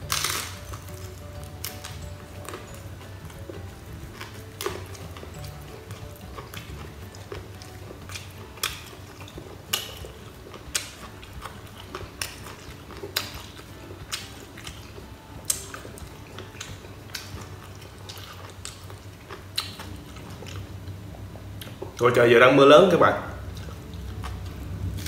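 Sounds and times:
person crunching and chewing: 0.0s - 20.7s
low steady background noise: 0.0s - 25.0s.

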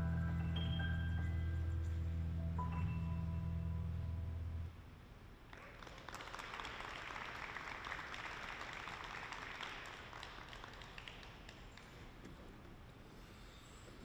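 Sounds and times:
audience applauding: 5.5s - 12.1s.

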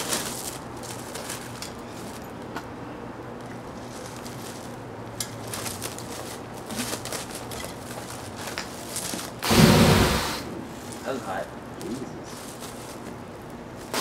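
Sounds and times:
fireball whoosh: 9.4s - 10.6s.

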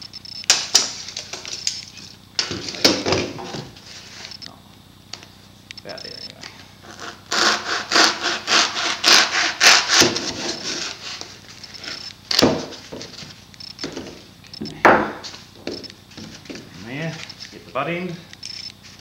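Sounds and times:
hacksaw cutting foam: 6.8s - 12.0s
sharp knocks: 13.8s - 15.8s.

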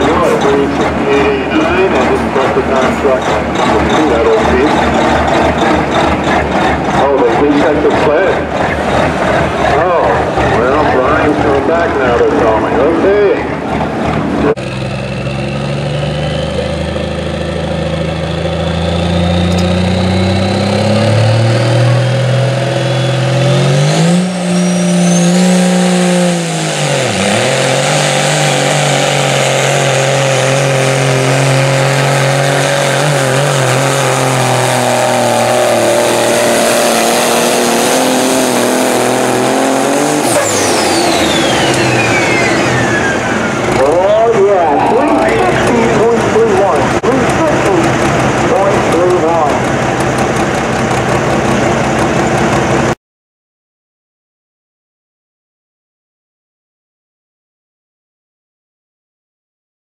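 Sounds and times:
diesel truck engine: 0.0s - 53.0s
turbo whine: 32.8s - 52.6s.

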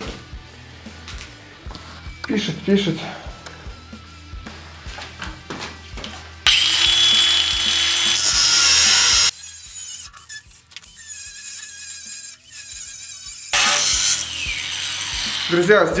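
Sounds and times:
angle grinder cutting steel: 6.5s - 16.0s.

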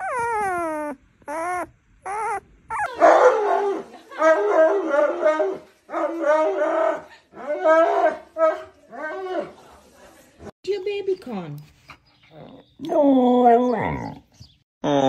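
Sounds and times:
puppy whimpering: 0.0s - 3.0s.

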